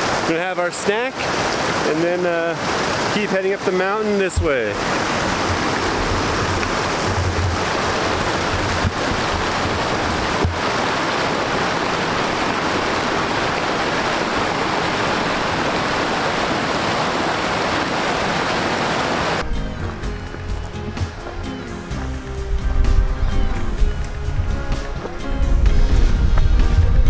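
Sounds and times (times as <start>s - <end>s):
creek rushing over rocks: 0.0s - 26.9s
background music: 19.4s - 27.0s.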